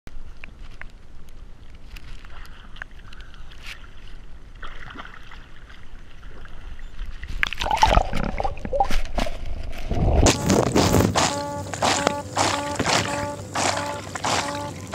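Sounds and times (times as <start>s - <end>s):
water lapping and splashing: 1.9s - 14.9s
bubbling churning underwater: 7.4s - 8.9s.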